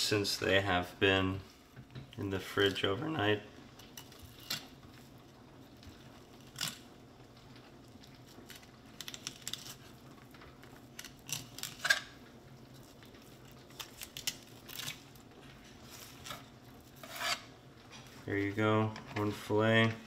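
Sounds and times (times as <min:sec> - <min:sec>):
knife scraping and clicking: 0:11.0 - 0:12.1, 0:16.2 - 0:17.5.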